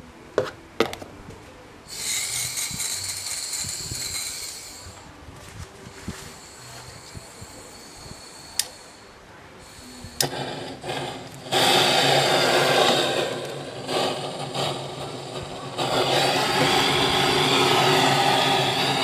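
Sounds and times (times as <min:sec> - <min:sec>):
blowtorch flame hissing: 0:01.9 - 0:05.1, 0:06.2 - 0:19.0
blowtorch ignition click: 0:08.6 - 0:08.8, 0:10.1 - 0:19.0.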